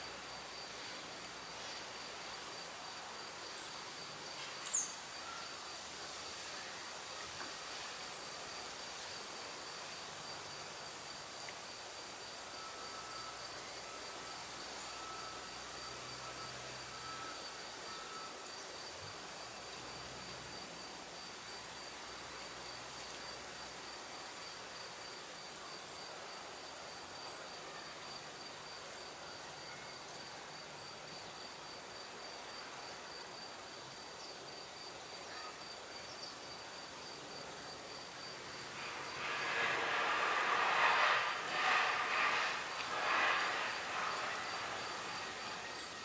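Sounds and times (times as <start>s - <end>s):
outdoor background hiss: 0.0s - 46.0s
insect chirping: 1.4s - 5.8s, 8.2s - 26.1s.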